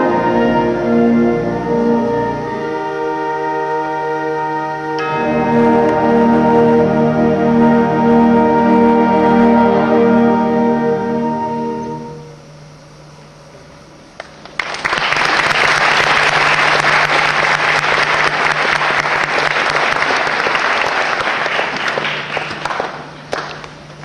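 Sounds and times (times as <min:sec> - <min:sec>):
audience applauding: 0:14.2 - 0:24.0.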